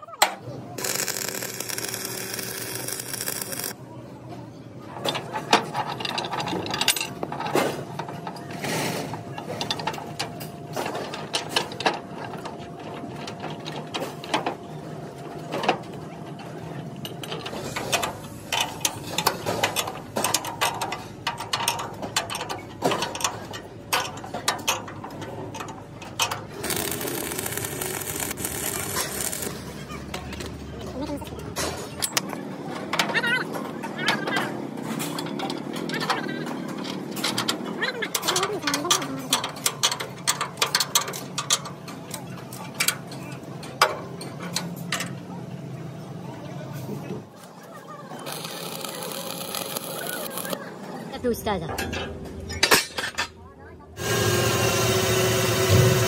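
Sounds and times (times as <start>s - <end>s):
arc welding hiss: 0.8s - 3.7s, 26.6s - 29.6s.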